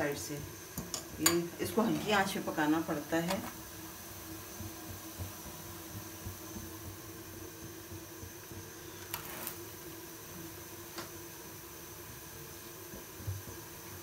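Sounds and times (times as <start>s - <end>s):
low hum and hiss: 0.0s - 14.0s
flatbread scraping on iron pan: 9.1s - 9.6s.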